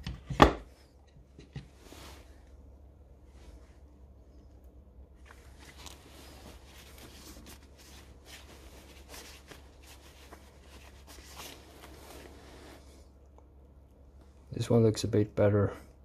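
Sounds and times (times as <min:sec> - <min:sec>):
cloth rubbing on metal: 0:01.7 - 0:02.5, 0:05.4 - 0:13.0.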